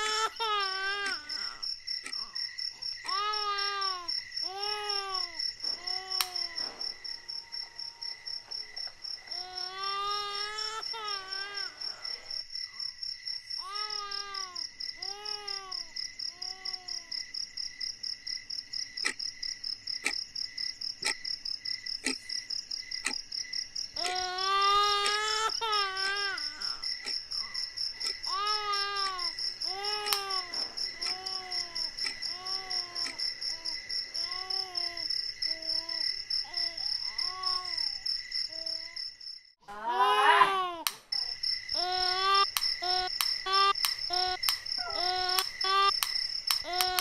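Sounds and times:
crickets chirping: 0.0s - 47.0s
sharp clicks: 2.0s - 2.2s, 20.0s - 20.2s, 29.9s - 31.3s, 40.8s - 41.1s, 42.4s - 47.0s
woman sobbing and wailing: 39.7s - 40.8s.

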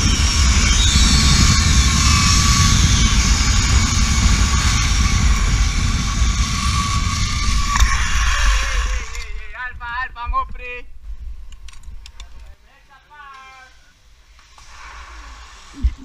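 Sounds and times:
zip-line pulleys whirring on cable: 0.0s - 9.4s, 14.2s - 16.0s
wind buffeting microphone: 0.0s - 12.5s.

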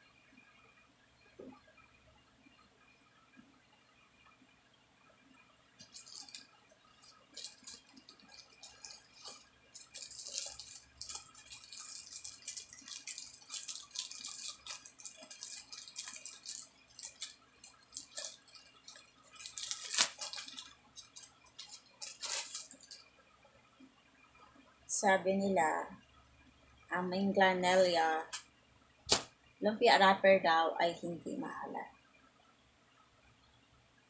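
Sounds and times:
plastic bag crinkling: 5.8s - 23.1s.

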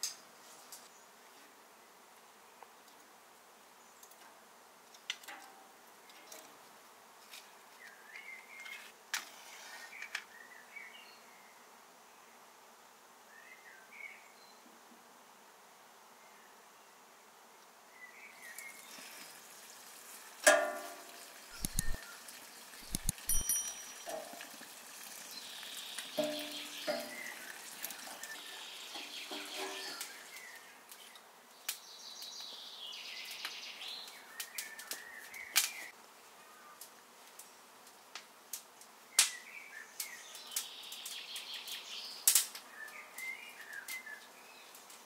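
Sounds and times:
wood fire crackling: 18.5s - 31.8s, 33.2s - 36.0s, 40.1s - 42.6s
birds chirping: 21.1s - 24.4s, 25.1s - 35.9s
firewood knocking against metal: 26.2s - 27.3s.

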